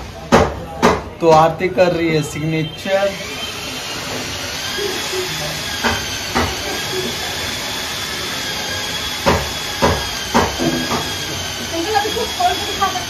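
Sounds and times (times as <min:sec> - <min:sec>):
faint high whine: 0:01.8 - 0:09.1
short sharp knocks: 0:09.2 - 0:11.2.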